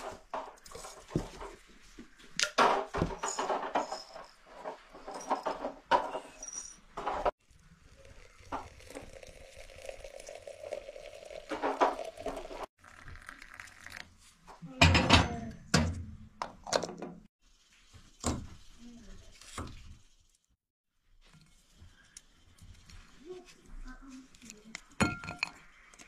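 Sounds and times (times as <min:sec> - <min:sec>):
water pouring into teapot: 0:07.4 - 0:14.2
tea leaves rustling: 0:07.6 - 0:14.0.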